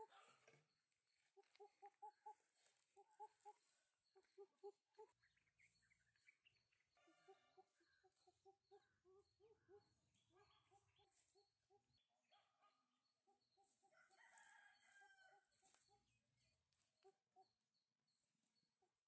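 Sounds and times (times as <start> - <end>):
faint rooster crow: 13.9 - 15.8.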